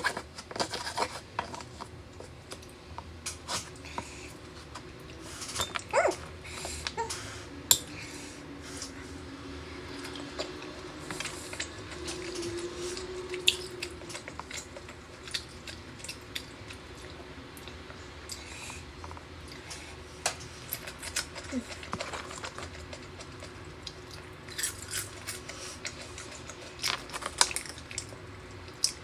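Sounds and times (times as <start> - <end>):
chewing: 9.8 - 29.0.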